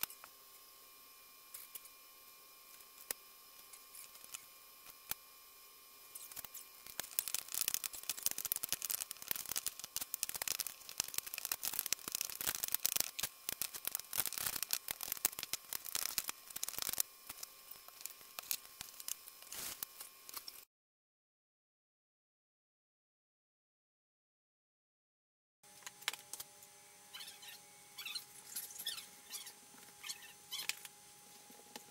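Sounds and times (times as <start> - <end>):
crackling and rustling of dough: 2.6 - 5.2, 6.1 - 20.7.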